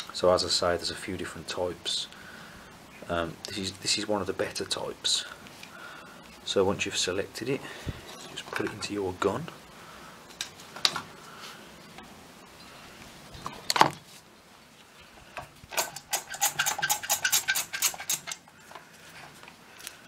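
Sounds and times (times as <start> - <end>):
caulking gun clicks and rattles: 15.7 - 18.5.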